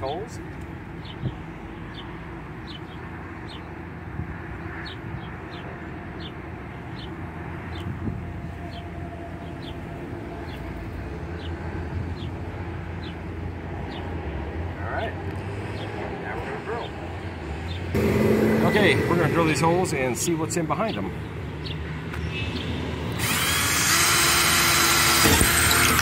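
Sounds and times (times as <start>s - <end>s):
low outdoor rumble: 16.0s - 21.4s.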